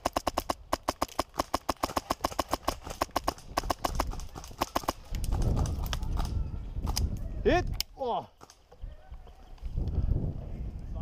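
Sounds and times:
airsoft rifle rapid shots: 0:00.0 - 0:05.7.

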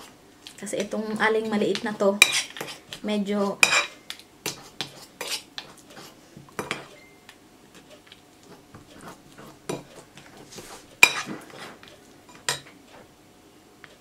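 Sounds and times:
cutlery scraping and clinking bowl: 0:02.2 - 0:02.8, 0:03.6 - 0:07.0, 0:08.4 - 0:12.8.

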